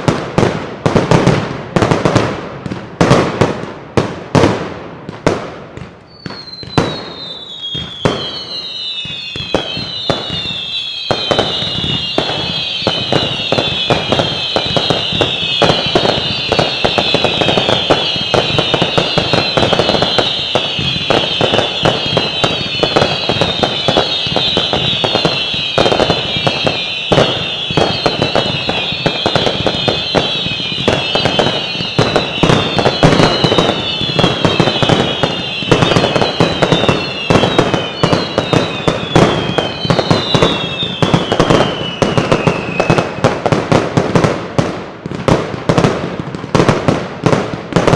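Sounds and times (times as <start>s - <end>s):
firework bangs: 0.0s - 47.9s
firework crackling and popping: 0.0s - 47.9s
falling firework whistles: 5.2s - 43.6s.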